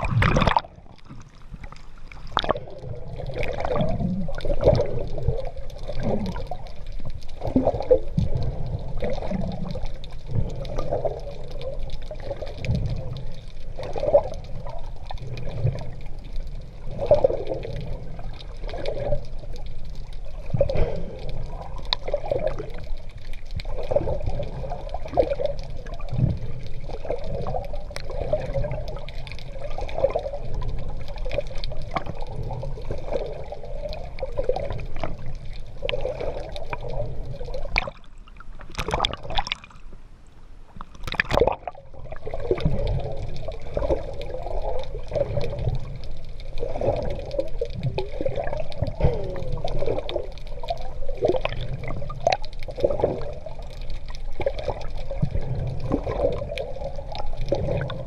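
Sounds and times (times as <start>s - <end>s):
sharp splashes: 0.0s - 0.9s
seawater sloshing and bubbling: 0.0s - 58.0s.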